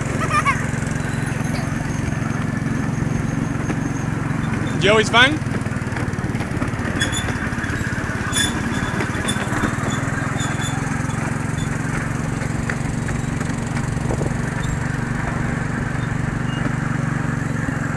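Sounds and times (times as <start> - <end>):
small train engine droning: 0.0 - 17.9.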